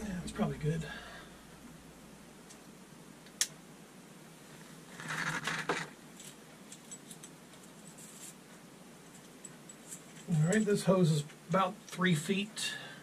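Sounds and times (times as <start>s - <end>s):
scraping rustle: 4.5s - 10.8s.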